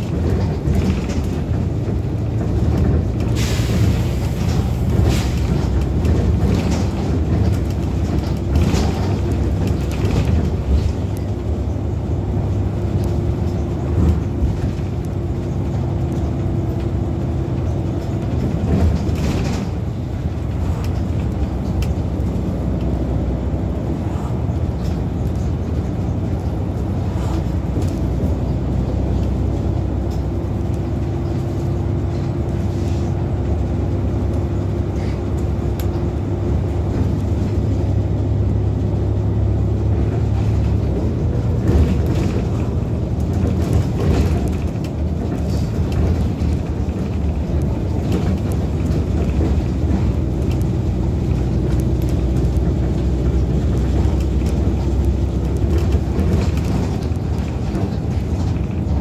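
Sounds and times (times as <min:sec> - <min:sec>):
bus diesel engine rumble: 0:00.0 - 0:59.0.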